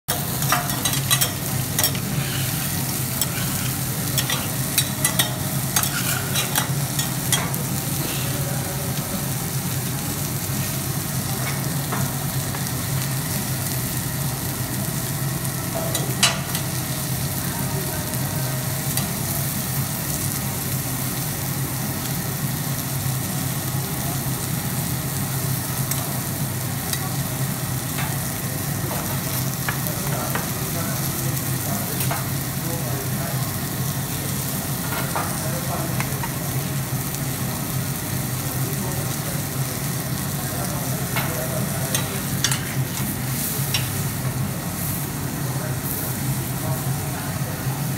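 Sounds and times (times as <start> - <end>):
metal spatulas clicking on griddle: 0.1 - 2.0, 4.2 - 7.6
chicken sizzling on griddle: 0.1 - 47.9.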